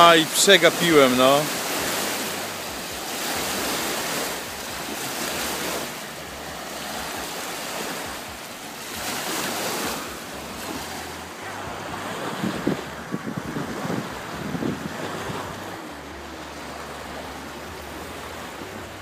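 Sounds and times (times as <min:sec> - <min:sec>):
waves washing onto beach: 0:00.0 - 0:19.0
wind buffeting microphone: 0:01.8 - 0:16.4.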